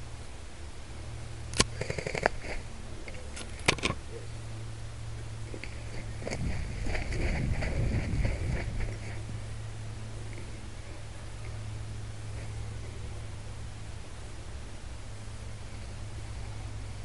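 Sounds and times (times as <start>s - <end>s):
steady low hum: 0.0s - 17.0s
sharp cracks: 1.5s - 2.6s
rustling through undergrowth: 5.4s - 11.0s.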